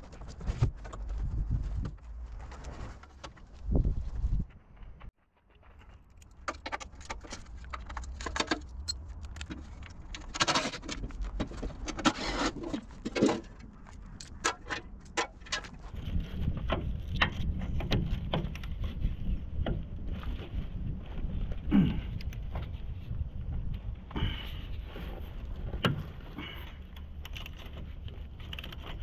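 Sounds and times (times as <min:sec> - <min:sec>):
steady low rumble: 0:13.5 - 0:29.0.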